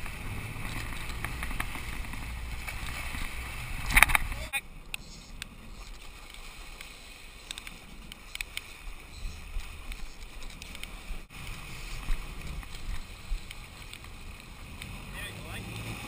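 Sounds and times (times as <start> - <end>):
boat engine rumble: 0.0 - 16.0
light ticks: 4.0 - 8.8, 12.4 - 15.0.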